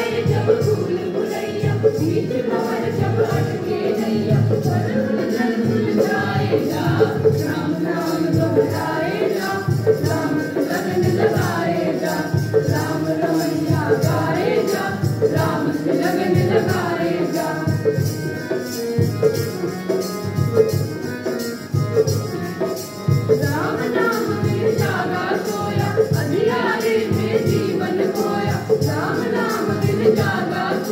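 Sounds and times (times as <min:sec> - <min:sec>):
children singing: 0:00.0 - 0:18.7, 0:23.4 - 0:30.9
harmonium: 0:00.0 - 0:30.9
jingling hand percussion: 0:00.0 - 0:30.9.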